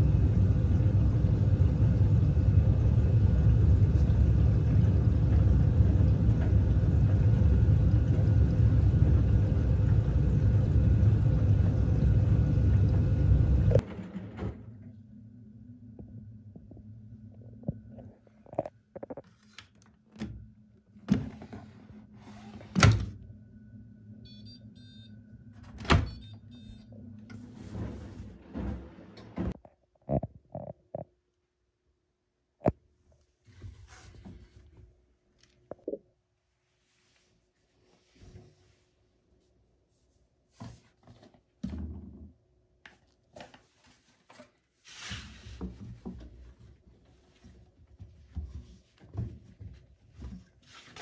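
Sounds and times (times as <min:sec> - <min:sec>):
washing machine drum hum: 0:00.0 - 0:15.1, 0:25.4 - 0:29.6.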